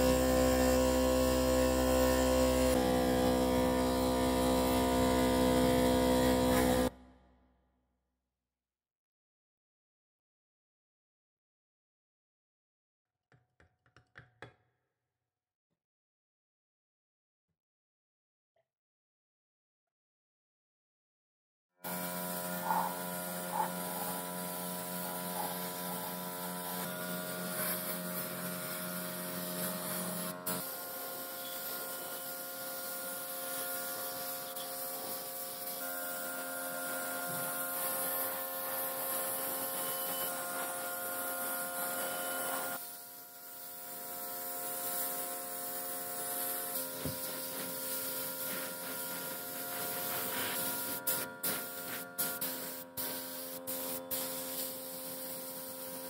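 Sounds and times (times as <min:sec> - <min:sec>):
spray gun electric hum: 0:00.0 - 0:06.9, 0:21.8 - 0:56.0
paint spray hissing: 0:21.9 - 0:56.0.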